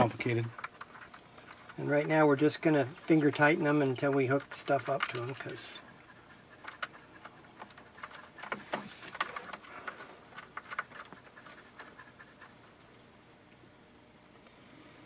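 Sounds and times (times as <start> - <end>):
dog panting: 5.2 - 10.0, 10.6 - 13.0.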